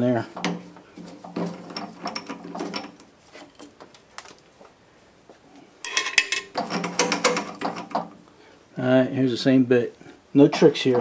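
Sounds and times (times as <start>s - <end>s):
metal clinking and scraping: 0.4s - 3.7s, 5.8s - 8.1s
steel plate clattering: 5.8s - 8.1s.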